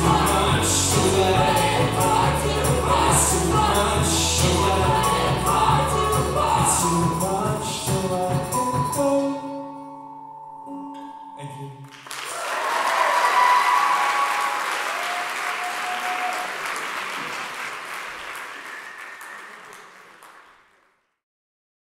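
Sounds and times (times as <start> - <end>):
audience applause: 11.9 - 21.0.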